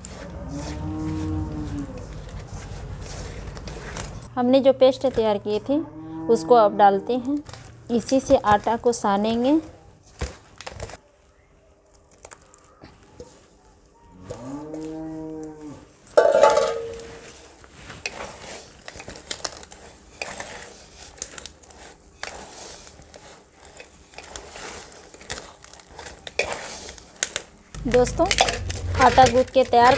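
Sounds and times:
hands kneading wet dough: 0:00.0 - 0:05.8, 0:07.1 - 0:16.0, 0:16.9 - 0:29.9
cow mooing: 0:00.2 - 0:02.1, 0:05.8 - 0:07.1, 0:14.2 - 0:15.8.

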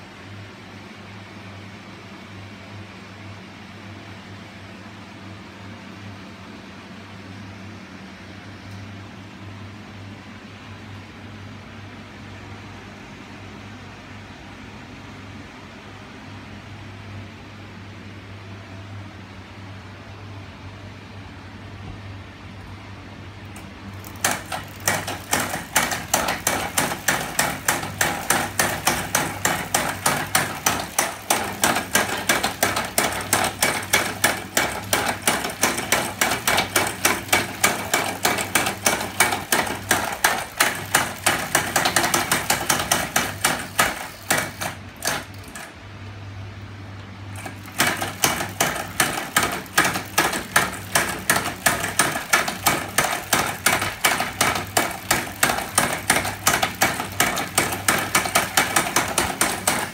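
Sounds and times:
metal parts knocking rhythmically: 0:23.9 - 0:45.7, 0:47.4 - 0:59.9.

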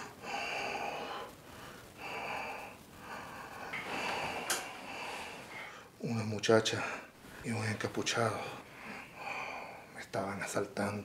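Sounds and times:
man breathing heavily: 0:00.0 - 0:06.0, 0:08.3 - 0:09.9.

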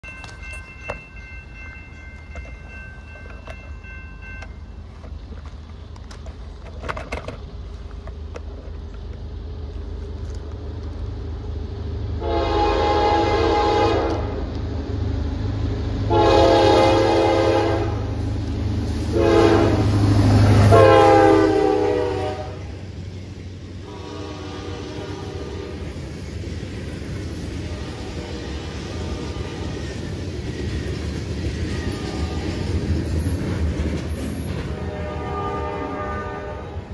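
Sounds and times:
freight cars rolling on rails: 0:00.0 - 0:36.9
locomotive engine rumble: 0:00.0 - 0:36.9
locomotive air horn: 0:12.2 - 0:14.4, 0:16.1 - 0:18.2, 0:19.1 - 0:20.0, 0:20.6 - 0:22.8, 0:23.8 - 0:25.9, 0:27.6 - 0:29.8, 0:34.7 - 0:36.9.

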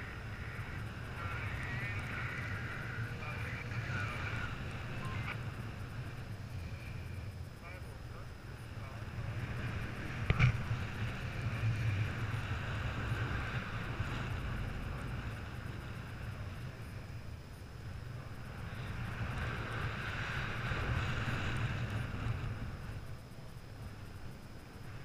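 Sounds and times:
wind rushing over microphone: 0:00.0 - 0:25.0.

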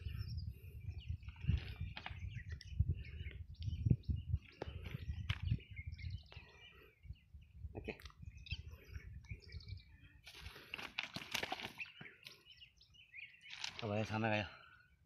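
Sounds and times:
low rumbling microphone noise: 0:00.0 - 0:10.0
birds chirping: 0:00.0 - 0:15.0.

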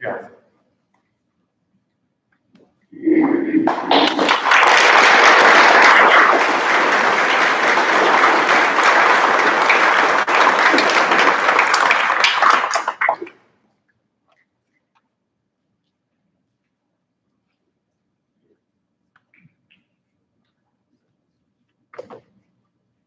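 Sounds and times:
audience applauding: 0:03.6 - 0:13.3.

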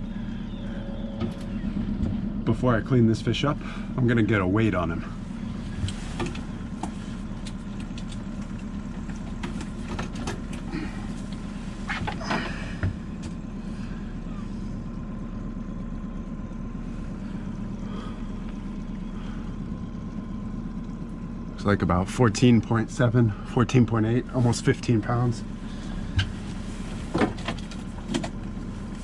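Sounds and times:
outboard motor running: 0:00.0 - 0:29.0
knocks and clatters: 0:05.8 - 0:13.4.

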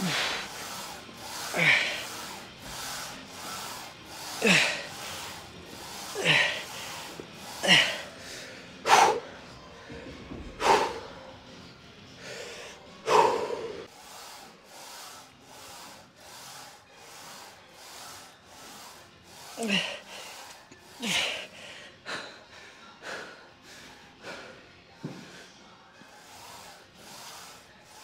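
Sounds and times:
person panting: 0:00.0 - 0:09.3, 0:12.2 - 0:13.9, 0:19.3 - 0:25.5.

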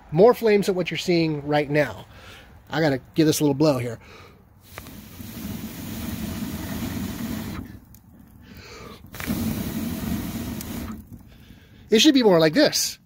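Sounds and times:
person blowing into fire: 0:04.0 - 0:11.9.

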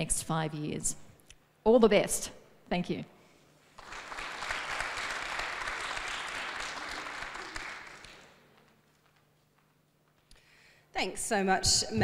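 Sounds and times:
audience applauding: 0:03.7 - 0:09.3.

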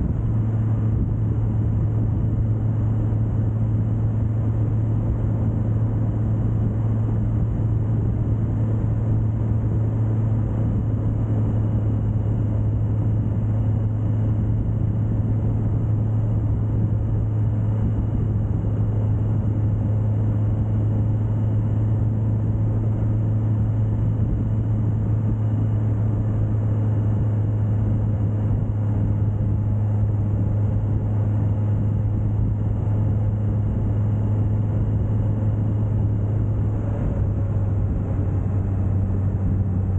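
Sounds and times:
motorcycle engine cruising: 0:00.0 - 0:39.9
wind and road noise: 0:00.0 - 0:39.9.

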